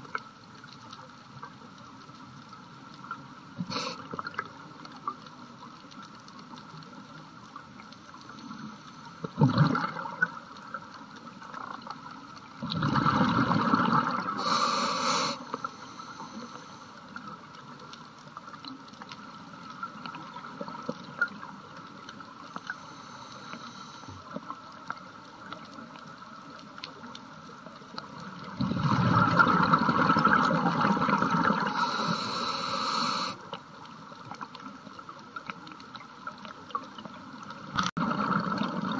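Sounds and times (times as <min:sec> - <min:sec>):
faint underwater hiss: 0:02.8 - 0:05.1, 0:07.6 - 0:09.4, 0:13.3 - 0:18.1, 0:21.8 - 0:25.5, 0:29.0 - 0:34.0
exhaled bubbles gurgling: 0:09.3 - 0:10.6, 0:12.6 - 0:15.4, 0:28.3 - 0:33.4, 0:37.4 - 0:38.9.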